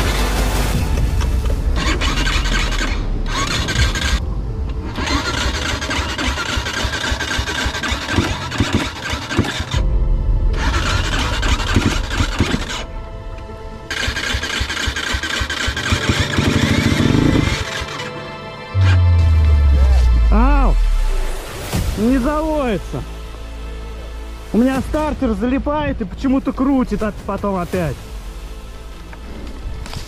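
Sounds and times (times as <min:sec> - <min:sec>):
electric starter cranking: 0:01.8 - 0:09.8, 0:10.6 - 0:12.9, 0:13.9 - 0:18.2
motorcycle engine running roughly: 0:04.9 - 0:09.8, 0:10.6 - 0:12.8, 0:13.9 - 0:18.1.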